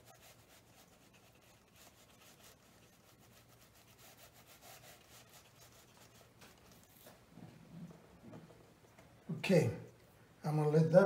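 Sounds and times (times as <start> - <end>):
brush rubbing on paper: 0.0 - 7.2.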